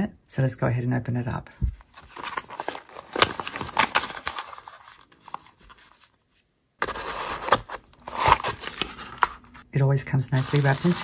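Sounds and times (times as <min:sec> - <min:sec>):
paper rustling: 0:01.7 - 0:09.6, 0:10.3 - 0:11.0.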